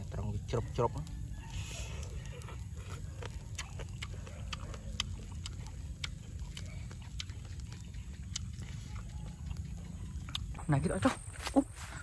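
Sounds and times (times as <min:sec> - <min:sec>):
steady low rumble: 0:00.0 - 0:12.0
person chewing: 0:01.5 - 0:10.7.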